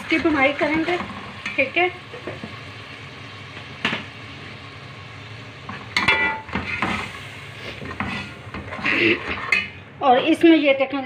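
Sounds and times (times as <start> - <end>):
spices sizzling in a pot: 0.0 - 11.0
spoon scraping metal pot: 7.8 - 9.8.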